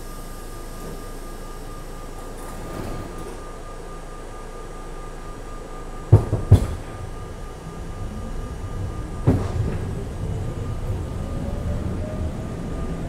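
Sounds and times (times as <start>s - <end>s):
train car clunks: 0.6s - 13.0s
train wheels rumbling: 4.8s - 13.0s
electric motor whine rising: 7.2s - 13.0s.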